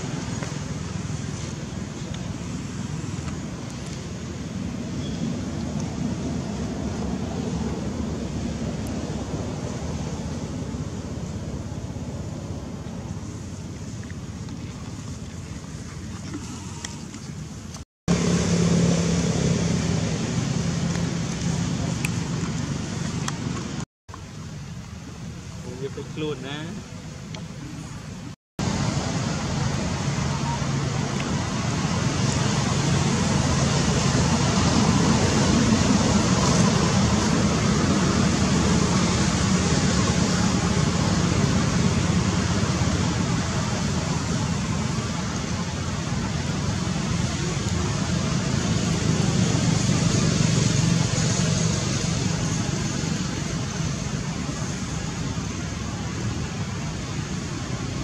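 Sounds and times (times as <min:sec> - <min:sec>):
steady rushing noise: 0:05.7 - 0:15.2, 0:28.2 - 0:58.0.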